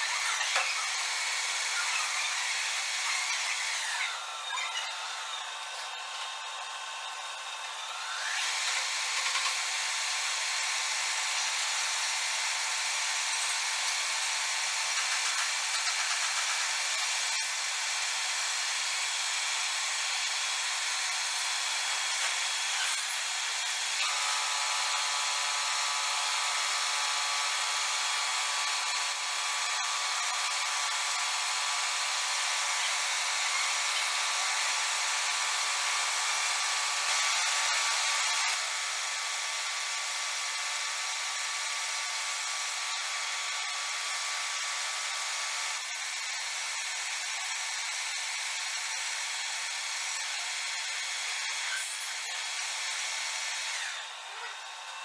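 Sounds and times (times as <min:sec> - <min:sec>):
lathe whine: 0:00.0 - 0:15.8.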